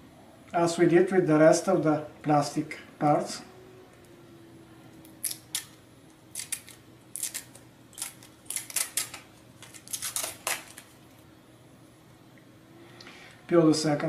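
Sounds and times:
protective film peeling off plastic: 0:05.2 - 0:11.0.

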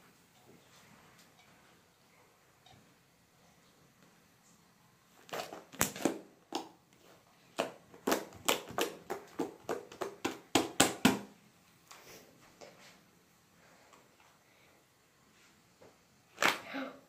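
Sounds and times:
hands slapping slime: 0:07.5 - 0:11.3.

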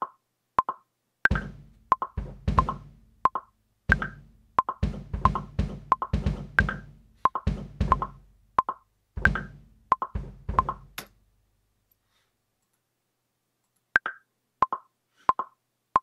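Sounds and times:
metronome clicks: 0:00.0 - 0:11.1
programmed drum beat: 0:01.3 - 0:11.0.

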